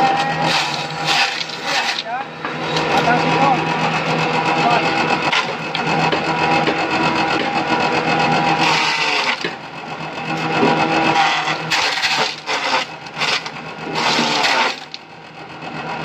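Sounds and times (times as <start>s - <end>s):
chaff cutter running: 0.0s - 16.0s
blades chopping grass: 0.4s - 2.1s, 11.2s - 14.9s.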